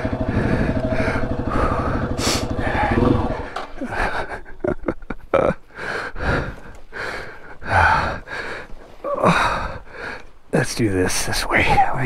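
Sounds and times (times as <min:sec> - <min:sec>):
person breathing hard and gasping: 0:00.0 - 0:04.4, 0:05.7 - 0:10.3.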